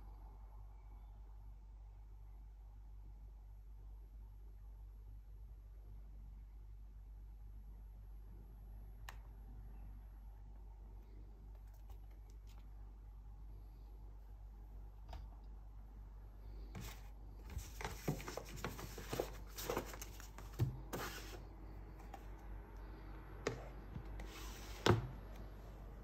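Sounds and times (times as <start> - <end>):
packaging rustling: 16.9 - 21.4.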